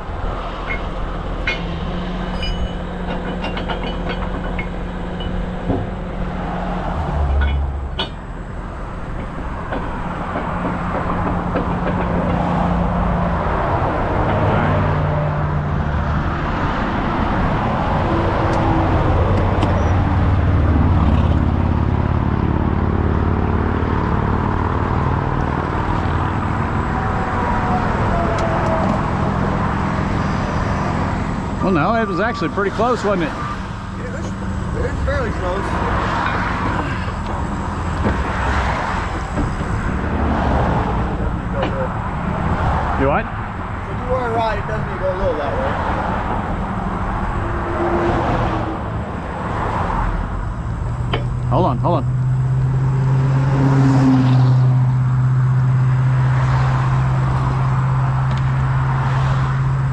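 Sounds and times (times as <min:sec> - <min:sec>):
diesel engine under hydraulic load: 0:00.0 - 0:44.0
highway traffic passing: 0:00.0 - 0:59.9
metallic clanks: 0:00.5 - 0:06.4, 0:07.0 - 0:12.5, 0:51.0 - 0:51.4.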